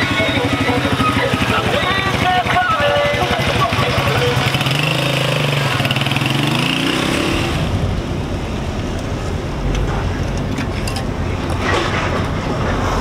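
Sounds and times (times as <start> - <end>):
motorcycle engine revving: 0.0 - 8.6
car road noise: 0.0 - 13.0.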